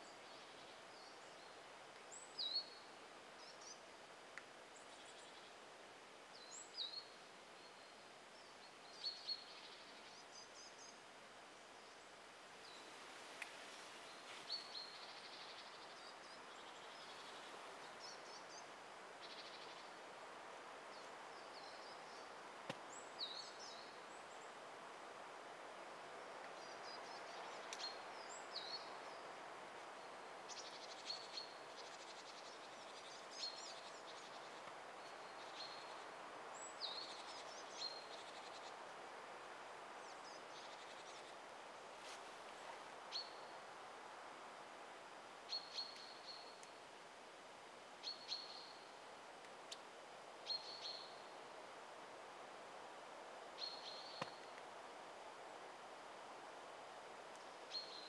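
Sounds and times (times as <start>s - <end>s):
soft steady hiss: 0.0s - 58.0s
faint clicks: 4.3s - 4.5s, 13.4s - 13.6s, 22.6s - 22.9s, 27.6s - 27.9s, 45.9s - 46.8s, 49.4s - 49.9s
small birds chirping: 11.8s - 24.6s, 26.2s - 43.7s, 45.4s - 46.8s, 53.5s - 54.8s.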